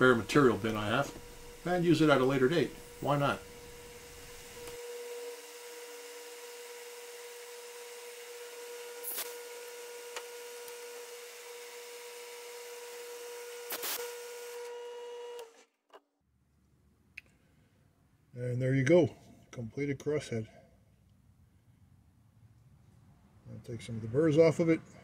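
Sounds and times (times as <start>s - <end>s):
metal lathe humming: 0.0s - 15.5s.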